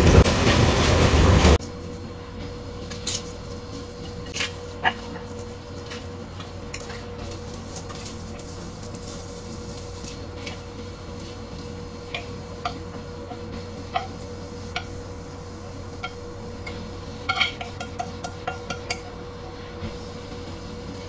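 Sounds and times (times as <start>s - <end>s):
steady hum: 0.0s - 21.0s
chopsticks tapping on pan: 13.9s - 14.9s.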